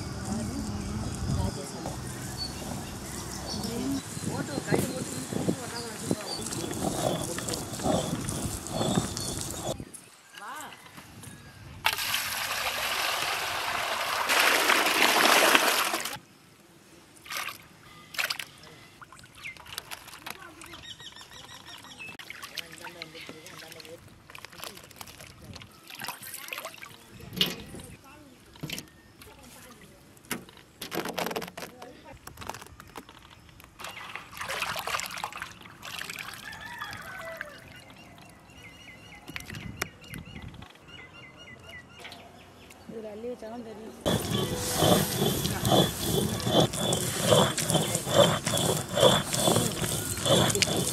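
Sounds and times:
bird chirping: 0:00.3 - 0:10.6
water pouring into a metal basin: 0:11.9 - 0:16.2
short splashes in water: 0:33.8 - 0:36.4.

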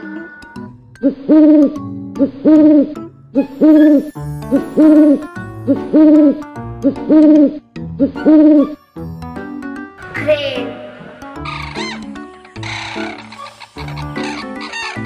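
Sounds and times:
owl hooting: 0:03.5 - 0:04.1, 0:11.4 - 0:15.0.

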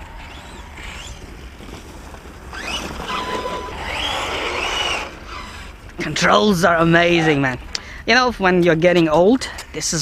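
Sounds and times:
rc truck tyre hiss and whine: 0:00.0 - 0:05.9
low wind rumble: 0:00.0 - 0:10.0.

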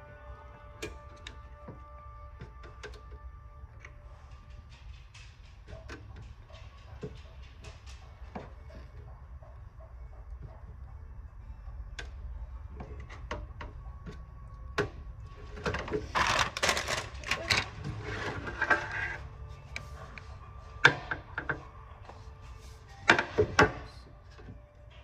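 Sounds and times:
clattering and rustling: 0:03.8 - 0:09.5, 0:14.8 - 0:21.7.

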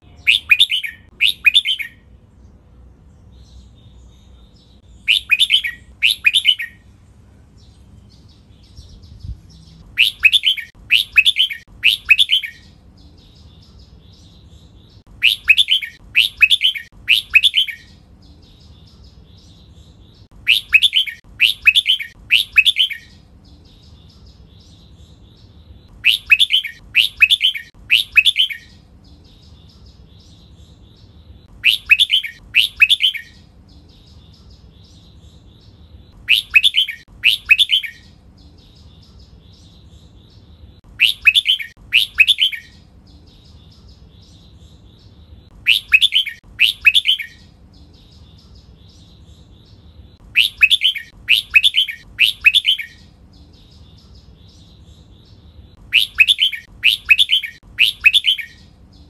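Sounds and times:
faint bird twittering: 0:00.0 - 0:02.1, 0:03.0 - 0:59.0
bulbul whistled song: 0:00.1 - 0:02.0, 0:05.0 - 0:06.8, 0:10.0 - 0:12.7, 0:15.2 - 0:18.0, 0:20.4 - 0:23.2, 0:26.0 - 0:28.8, 0:31.6 - 0:33.5, 0:36.2 - 0:38.1, 0:40.9 - 0:42.8, 0:45.6 - 0:47.5, 0:50.3 - 0:53.1, 0:55.8 - 0:58.7.

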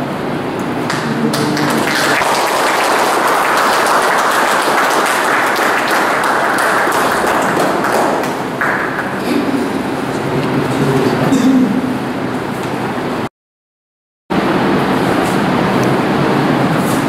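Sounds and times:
small group applauding: 0:00.8 - 0:10.0.

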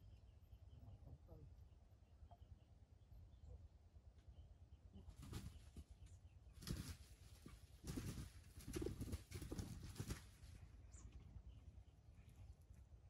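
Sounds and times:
bird footsteps in dry leaves: 0:06.6 - 0:10.8.

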